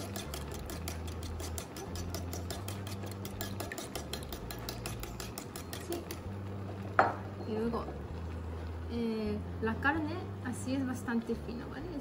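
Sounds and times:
chopsticks beating egg in bowl: 0.0s - 6.3s.

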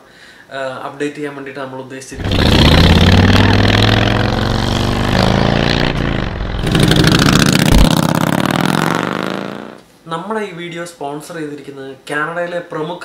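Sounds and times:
motorcycle engine riding by: 2.2s - 9.8s.

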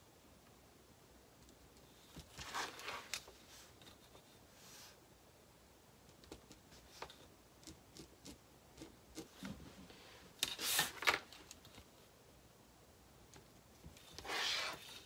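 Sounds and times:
ruler and fabric sliding: 2.3s - 3.8s, 14.0s - 15.0s.

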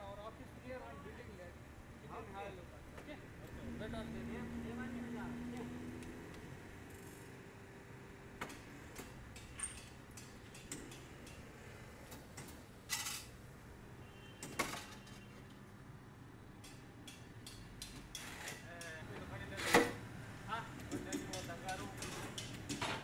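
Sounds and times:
light metallic clicks and clanks: 8.4s - 11.5s, 16.6s - 19.0s, 20.8s - 23.0s.

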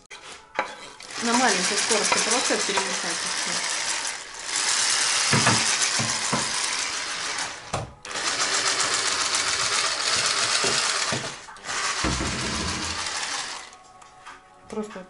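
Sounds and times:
immersion blender whirring: 1.0s - 13.8s.

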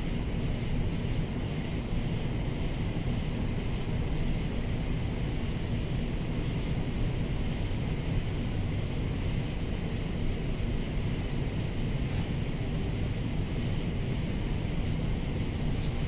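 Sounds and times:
cicadas singing: 6.4s - 16.0s.

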